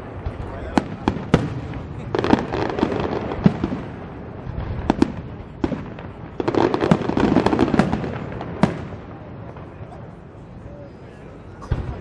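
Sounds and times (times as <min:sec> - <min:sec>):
firework bangs: 0:00.0 - 0:12.0
firework crackling: 0:00.0 - 0:12.0
continuous rumble: 0:07.6 - 0:12.0.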